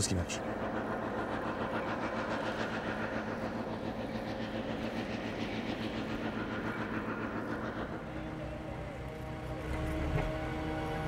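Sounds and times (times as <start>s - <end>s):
combine harvester running: 0.0s - 11.0s.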